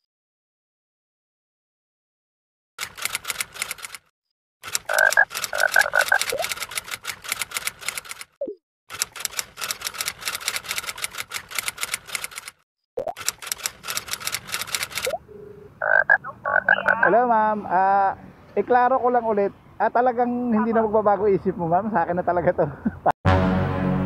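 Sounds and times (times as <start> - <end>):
fast keyboard typing: 2.8 - 15.2.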